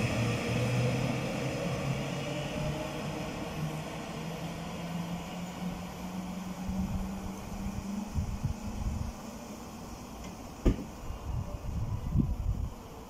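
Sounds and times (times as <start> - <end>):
electric train hum: 0.0 - 13.0.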